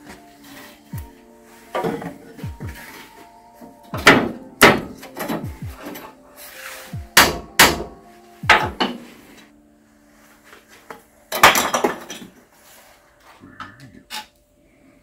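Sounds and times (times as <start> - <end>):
hammer striking steel: 4.0 - 5.6, 7.1 - 9.1
steel tools clattering: 11.3 - 12.4.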